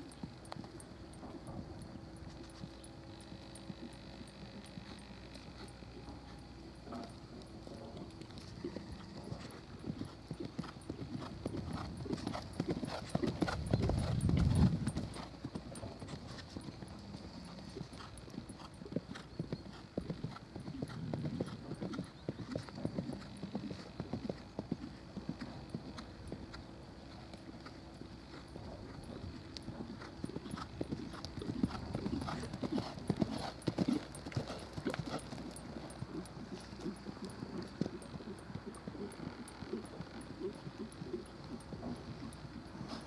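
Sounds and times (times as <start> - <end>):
hoofbeats on sand: 7.7 - 15.3, 27.2 - 37.9, 41.1 - 43.0.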